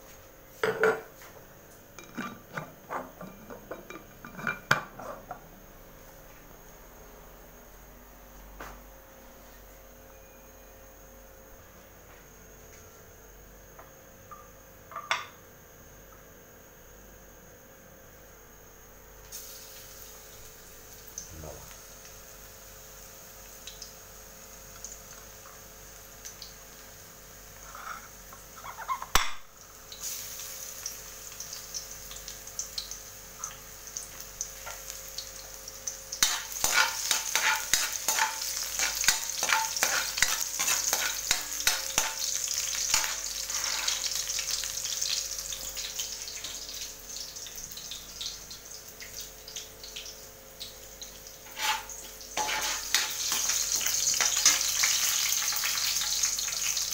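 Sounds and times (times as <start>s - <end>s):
garlic sizzling in oil: 19.2s - 56.9s
spatula stirring in wok: 36.2s - 44.1s, 51.4s - 53.5s.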